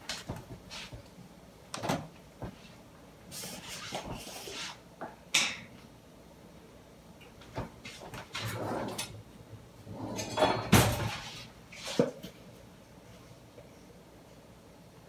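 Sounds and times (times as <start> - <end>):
rustling scrape: 2.6 - 4.8, 11.1 - 12.0.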